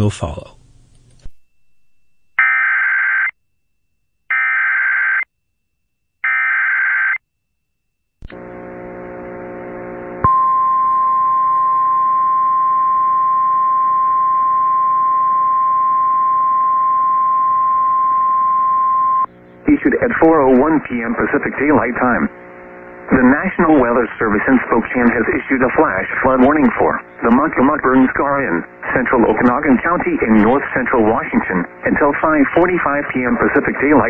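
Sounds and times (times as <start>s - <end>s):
long steady attention tone: 7.5s - 34.0s
hiss with low hum: 19.2s - 34.0s.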